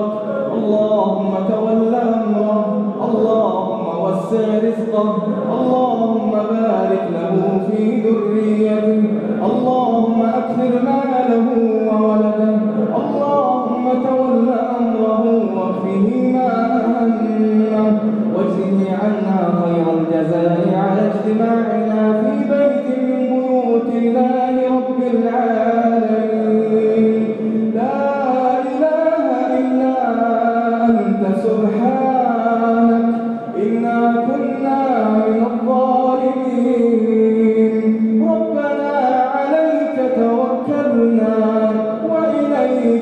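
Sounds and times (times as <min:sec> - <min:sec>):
man chanting melodically: 0:00.0 - 0:43.0.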